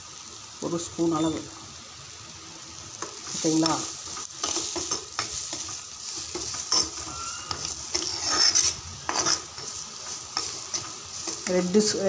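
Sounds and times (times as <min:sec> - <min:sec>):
spices sizzling in oil: 0:00.0 - 0:12.0
spoon scraping a clay pot: 0:06.3 - 0:09.8.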